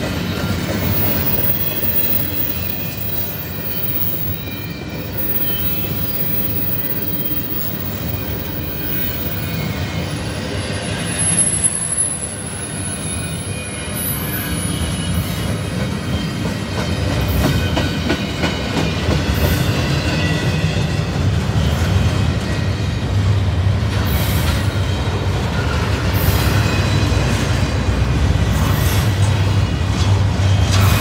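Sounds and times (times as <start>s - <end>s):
steel wheels rumbling on rail: 0.0s - 31.0s
high-pitched wheel squeal: 0.8s - 15.5s.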